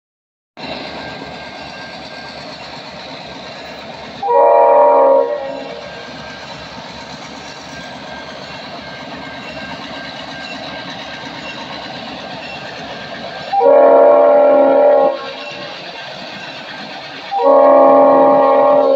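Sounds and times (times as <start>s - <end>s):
diesel locomotives rolling past: 0.6s - 18.9s
train air horn blasts: 4.2s - 5.9s, 13.5s - 15.7s, 17.3s - 18.9s.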